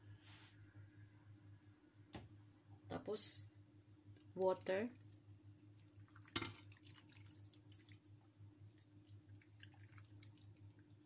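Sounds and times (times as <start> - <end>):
water trickling into a pan: 4.7 - 11.0.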